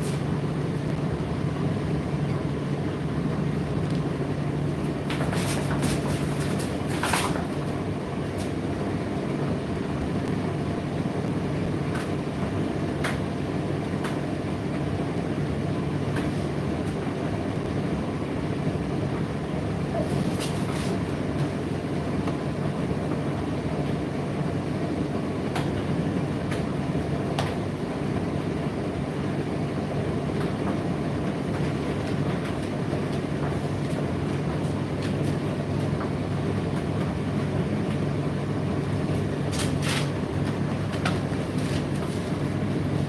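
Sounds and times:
tumble dryer humming and rumbling: 0.0 - 43.0.

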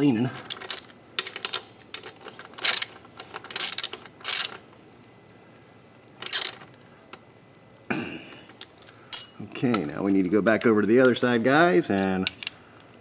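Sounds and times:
socket ratchet clicking: 3.5 - 4.6.

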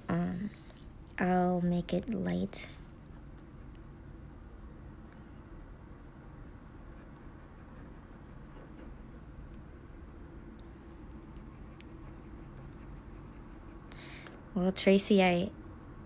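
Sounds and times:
low steady hum: 0.0 - 16.0
pencil scratching on paper: 6.4 - 9.0, 11.4 - 13.9.

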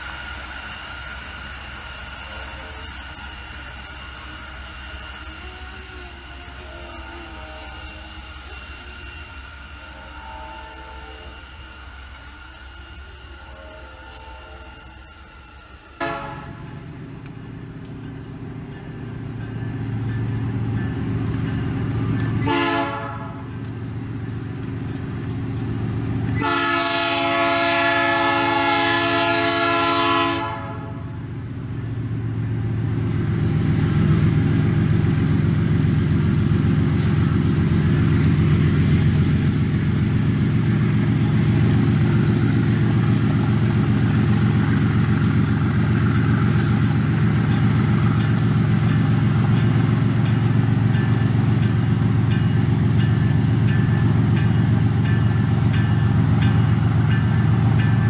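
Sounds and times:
locomotive diesel engine running: 0.0 - 58.0
locomotive horn blast: 6.7 - 8.3, 9.9 - 11.4, 16.0 - 16.9, 22.4 - 23.6, 26.3 - 31.2.

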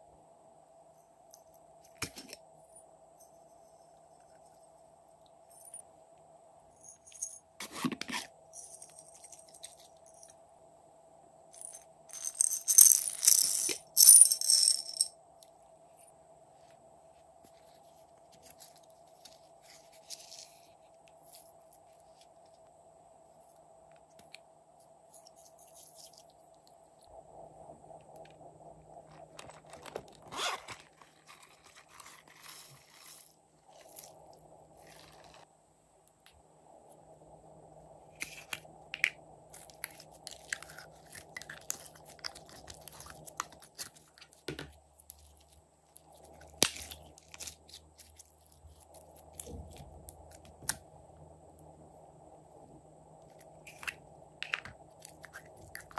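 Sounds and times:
beads rattling in plastic bottles: 11.6 - 15.1.

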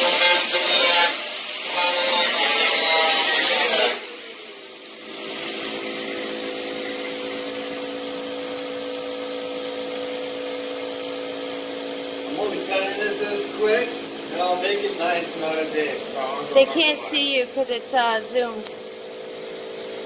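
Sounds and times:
power tool whining: 0.0 - 19.7
steady hum with tones: 4.2 - 19.7.

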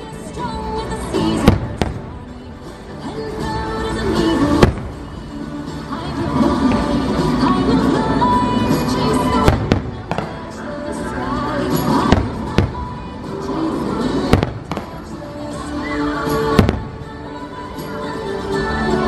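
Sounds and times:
music over loudspeakers: 0.0 - 19.0
fireworks bursting: 1.2 - 2.7, 4.3 - 11.1, 11.7 - 17.5.

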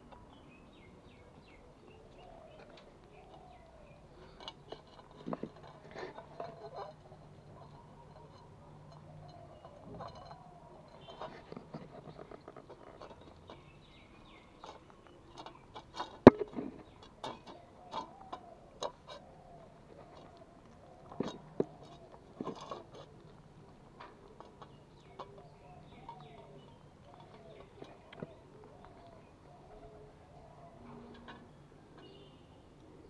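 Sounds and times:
clicks and clinks on metal bowl: 4.4 - 11.9.

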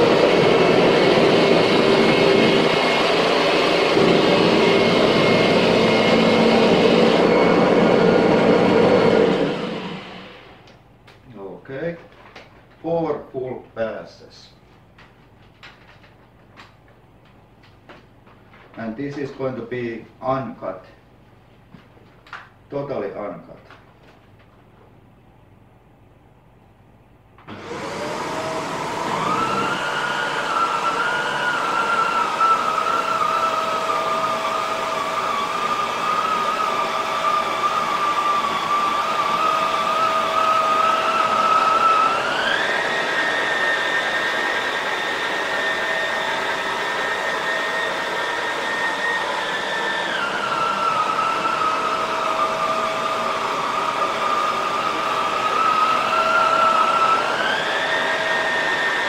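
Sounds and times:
vacuum cleaner motor whine: 0.0 - 10.8, 27.4 - 59.0.

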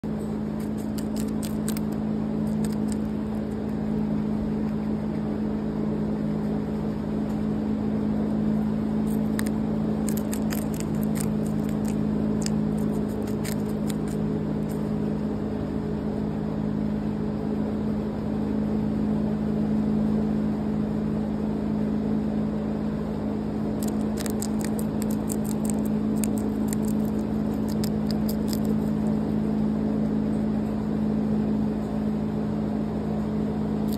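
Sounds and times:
guinea pig chewing lettuce: 0.0 - 15.8, 23.5 - 30.9, 33.7 - 33.9
steady low hum: 0.0 - 33.9.

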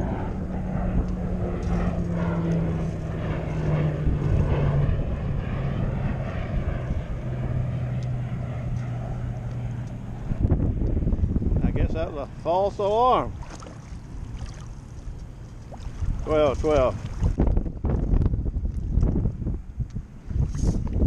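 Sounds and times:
low engine drone passing: 0.0 - 20.8
water wash from wading: 12.8 - 19.2.

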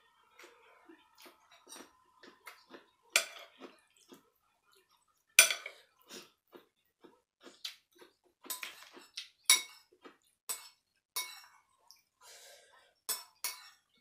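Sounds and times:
metal spoon clinking on ceramic bowl: 5.4 - 5.7, 8.5 - 9.9, 10.5 - 11.5, 13.1 - 13.8.

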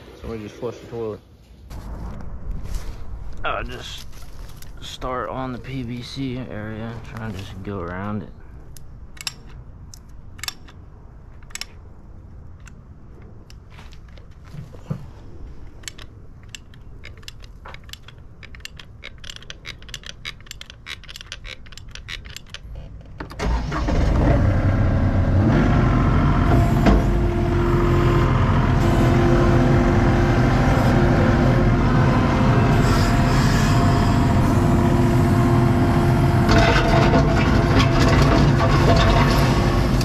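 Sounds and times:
engine whine: 1.7 - 18.7, 23.2 - 40.0
caulking gun clicks: 8.7 - 10.8
diesel loader engine running: 23.3 - 40.0.

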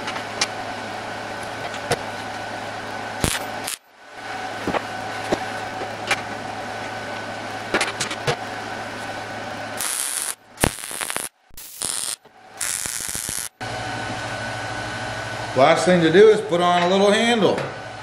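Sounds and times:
machine hum: 0.0 - 18.0
welding arc crackling: 3.2 - 3.9, 9.8 - 13.6.

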